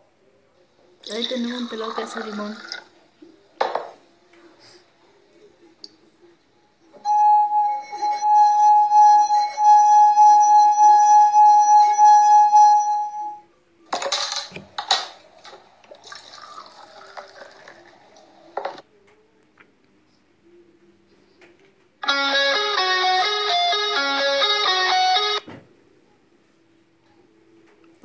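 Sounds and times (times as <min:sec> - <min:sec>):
singing glass ringing tone: 0:07.1 - 0:13.5
beer pouring and fizzing: 0:15.4 - 0:18.8.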